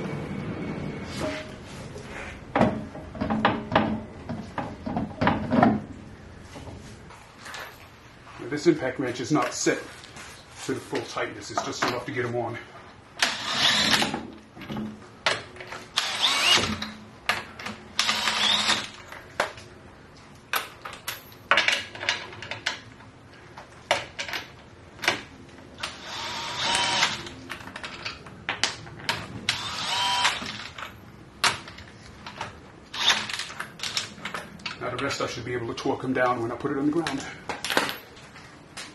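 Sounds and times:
impact wrench whirring: 13.2s - 14.3s, 15.9s - 16.9s, 18.0s - 19.0s, 25.8s - 27.3s, 29.5s - 30.8s, 32.9s - 33.4s.

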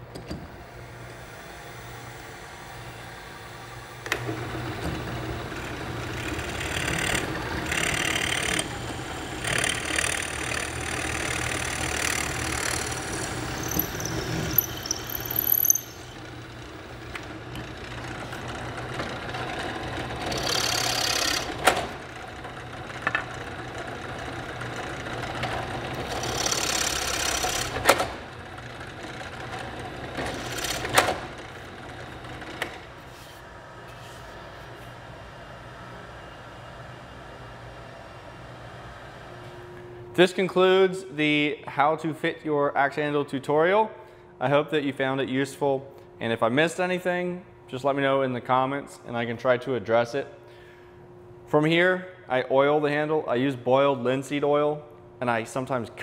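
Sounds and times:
drill press motor humming: 0.1s - 33.9s
drill bit boring into wood: 6.1s - 16.3s, 20.3s - 21.5s, 26.1s - 27.8s
high squeal: 13.4s - 16.2s.

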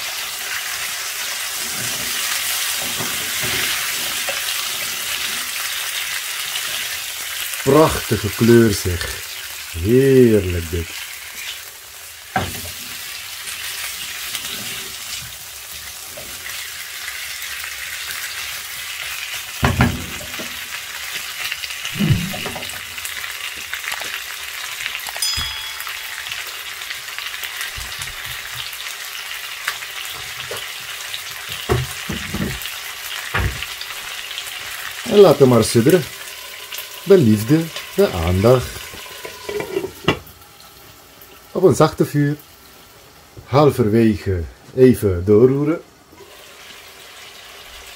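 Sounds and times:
chicken sizzling in oil: 0.0s - 43.4s, 45.5s - 47.9s
spatula scraping a pan: 1.4s - 5.7s, 14.0s - 15.3s, 38.9s - 40.0s.

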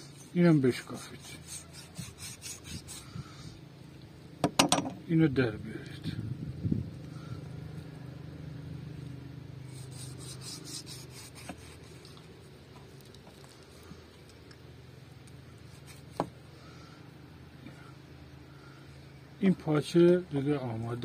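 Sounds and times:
knife scraping on wooden block: 0.0s - 3.2s, 9.7s - 12.2s
steady low hum: 0.0s - 21.0s
knife knocking on block: 4.4s - 5.0s.

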